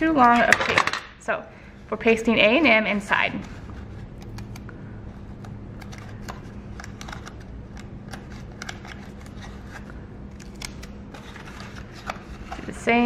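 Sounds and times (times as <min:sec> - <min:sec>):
low steady hum: 0:00.0 - 0:13.0
paper and tape crackling: 0:03.3 - 0:13.0.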